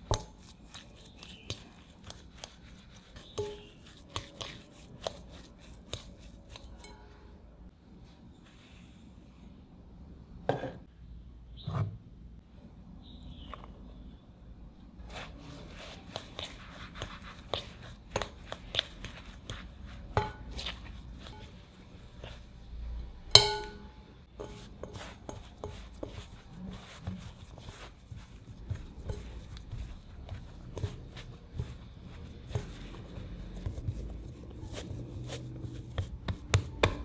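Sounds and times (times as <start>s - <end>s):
fork scraping in glass bowl: 24.4s - 31.3s.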